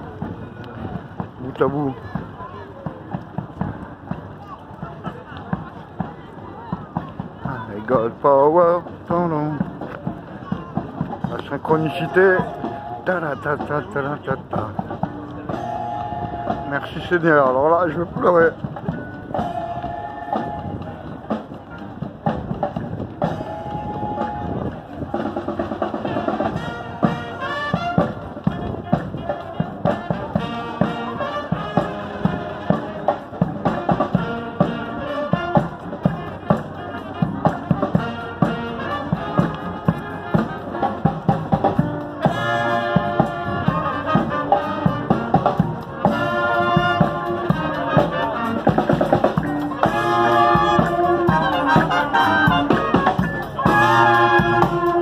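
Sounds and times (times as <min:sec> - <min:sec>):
field drums beat: 0:00.0 - 0:55.0
brass playing tune: 0:11.7 - 0:13.3, 0:15.5 - 0:17.2, 0:18.9 - 0:20.9, 0:23.2 - 0:55.0.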